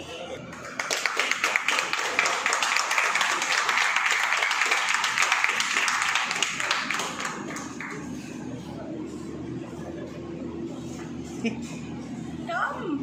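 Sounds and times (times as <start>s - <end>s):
people clapping: 0.4s - 8.4s.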